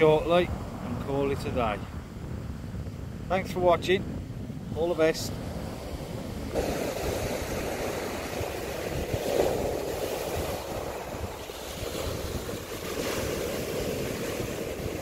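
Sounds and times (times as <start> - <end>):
waves breaking on beach: 4.6 - 15.0.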